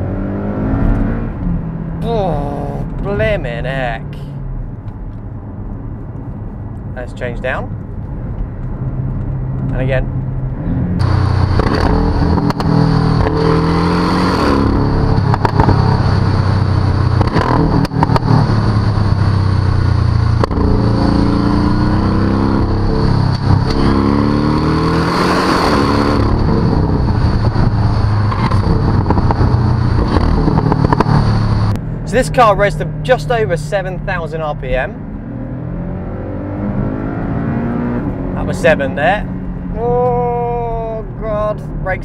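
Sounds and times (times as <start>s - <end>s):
car engine accelerating: 0.0s - 6.9s, 7.7s - 42.0s
exhaust cracks: 7.7s - 35.0s.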